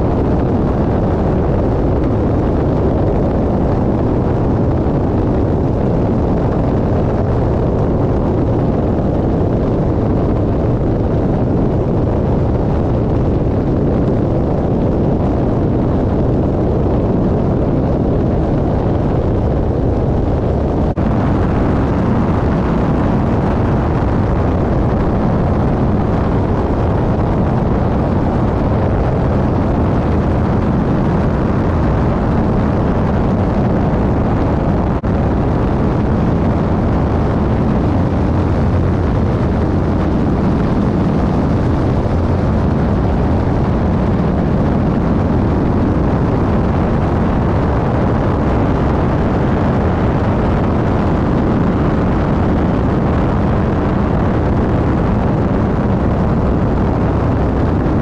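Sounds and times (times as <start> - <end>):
aircraft engine and propeller: 0.0 - 58.0
airflow buffeting camera: 0.0 - 58.0.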